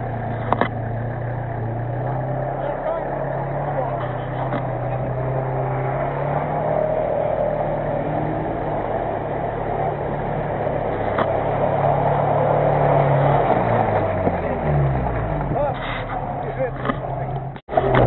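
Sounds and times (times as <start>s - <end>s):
car engine running under load: 0.0s - 18.0s.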